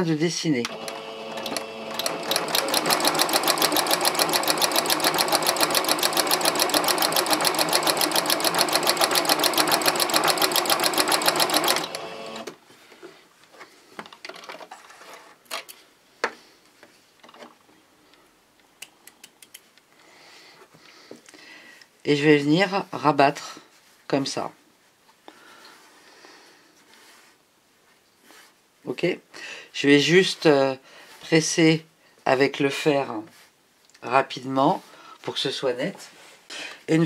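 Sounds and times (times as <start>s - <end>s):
sewing machine stitching: 0.7s - 12.5s.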